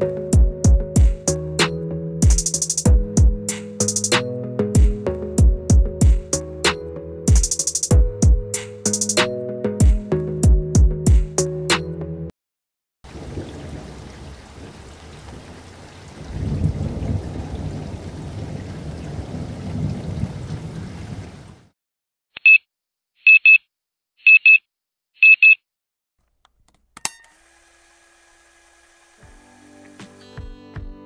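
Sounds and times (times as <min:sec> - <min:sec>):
rushing noise with low rumbling: 0:16.2 - 0:21.3
double beeps: 0:23.3 - 0:25.6.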